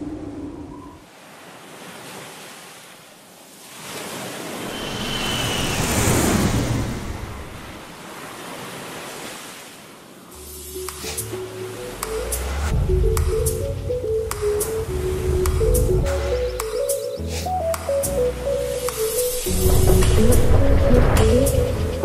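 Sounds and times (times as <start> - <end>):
rushing noise sound effect: 4.6 - 7.8.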